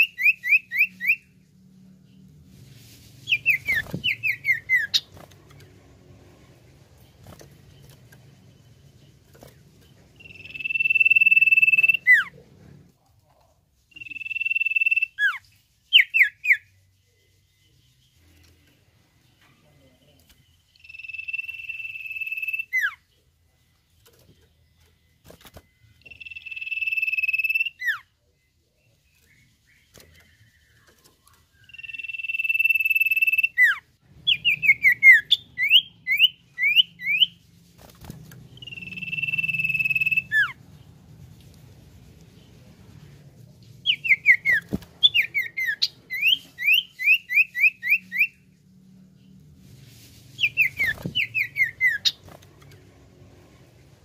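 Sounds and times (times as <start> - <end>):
bird whistling: 0.0 - 1.3, 3.3 - 5.1, 10.2 - 12.3, 13.9 - 16.6, 20.8 - 23.0, 26.1 - 28.0, 31.6 - 37.4, 38.6 - 40.6, 43.8 - 48.4, 50.4 - 52.2
bird rapid rising notes: 38.5 - 40.6.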